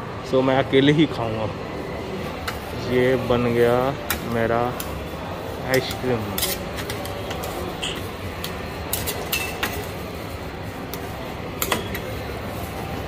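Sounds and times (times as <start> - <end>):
metal spatulas clacking on steel: 5.7 - 9.9, 11.6 - 12.1.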